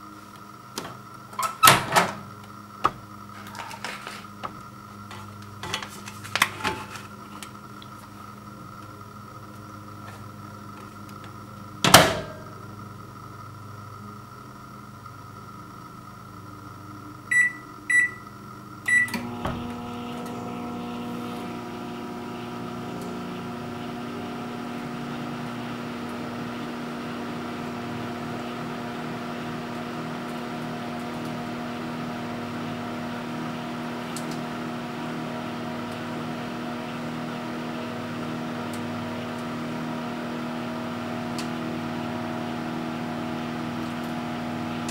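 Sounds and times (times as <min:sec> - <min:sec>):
microwave oven humming: 0:00.0 - 0:44.9
microwave door shutting: 0:00.8 - 0:03.0, 0:11.8 - 0:12.5, 0:18.9 - 0:23.5
keypad beeps: 0:17.3 - 0:18.2, 0:18.9 - 0:19.2.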